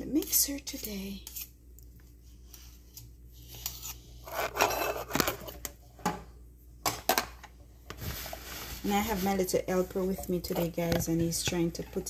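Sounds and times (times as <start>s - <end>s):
spoon scraping butter in bowl: 0.2s - 1.6s.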